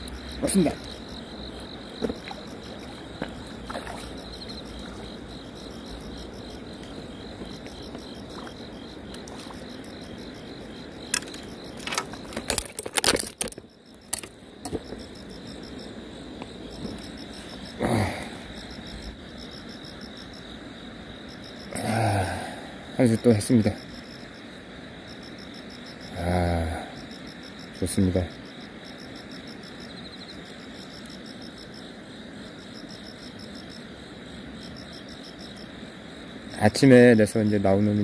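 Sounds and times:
insects chirping: 0.0s - 38.0s
sharp clicks and knocks: 11.1s - 15.1s.

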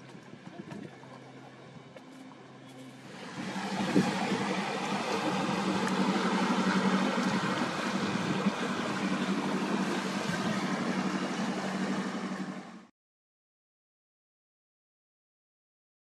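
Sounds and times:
boat engine running: 0.0s - 12.9s
water washing along hull: 2.9s - 12.9s.

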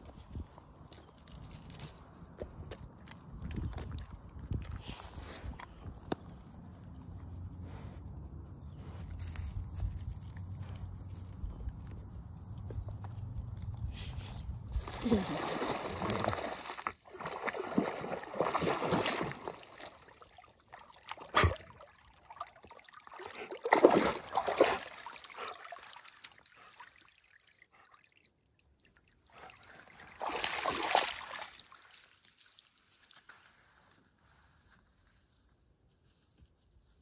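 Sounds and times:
dog splashing through water: 14.3s - 27.1s, 29.3s - 32.6s.

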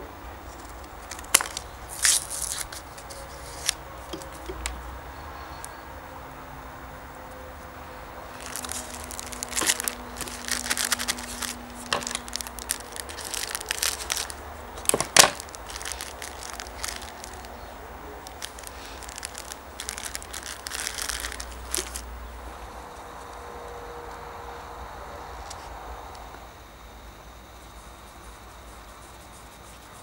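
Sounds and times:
plastic packaging crinkling and tearing: 0.5s - 4.5s, 8.3s - 22.1s
sharp crack: 8.3s - 17.6s
cotton and plastic rustling: 8.3s - 22.1s.

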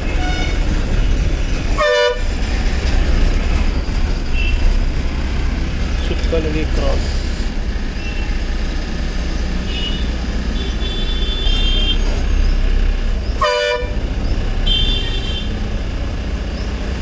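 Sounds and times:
loud horn blast: 0.0s - 0.6s, 1.8s - 2.3s, 13.4s - 14.0s, 14.6s - 15.6s
vehicle horns honking: 0.0s - 0.7s, 1.8s - 2.3s, 4.3s - 4.7s, 9.6s - 12.2s, 13.4s - 14.0s, 14.6s - 15.6s
bus diesel engine drone: 0.0s - 17.0s.

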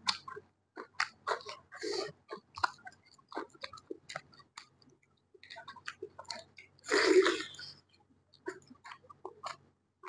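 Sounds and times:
chewing: 0.0s - 9.7s.

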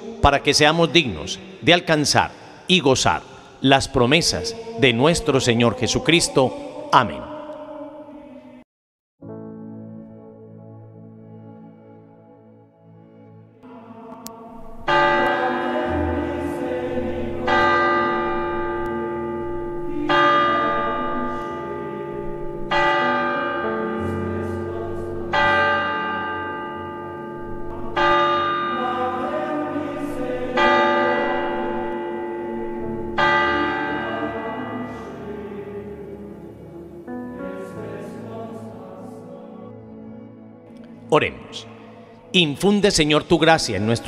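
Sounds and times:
soft choir-like drone music: 0.0s - 1.8s, 2.4s - 8.6s, 9.6s - 44.0s
church bell tolling: 14.7s - 35.4s.

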